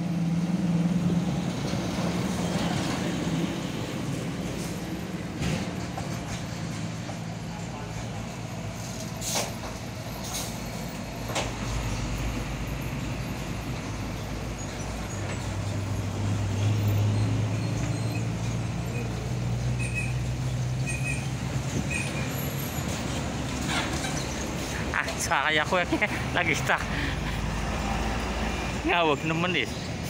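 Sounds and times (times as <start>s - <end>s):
diesel truck engines droning: 0.0s - 30.0s.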